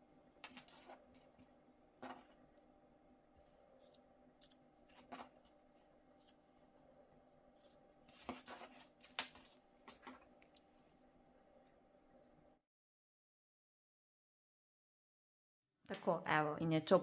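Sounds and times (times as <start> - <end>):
scissors snipping: 3.8 - 4.6.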